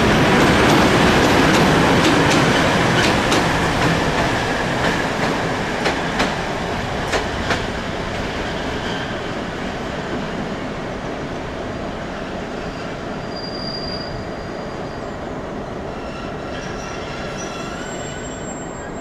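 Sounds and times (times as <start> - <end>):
rail and diesel rumble: 0.0 - 19.0
train wheels squealing on rails: 8.3 - 9.8, 12.2 - 19.0.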